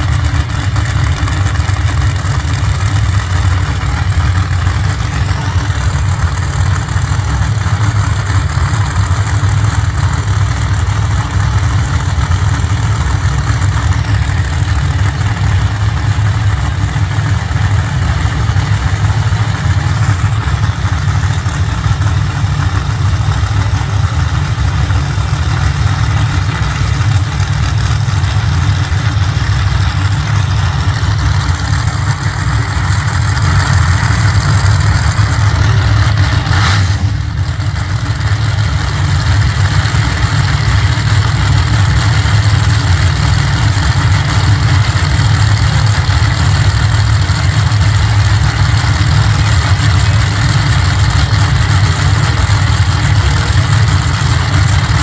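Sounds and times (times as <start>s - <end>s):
race car engines idling: 0.0s - 55.0s.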